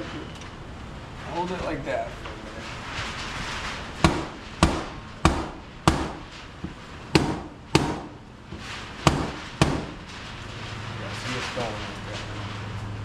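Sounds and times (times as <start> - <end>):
mallet knocking window frame: 4.0 - 6.2, 7.1 - 8.1, 9.1 - 10.0.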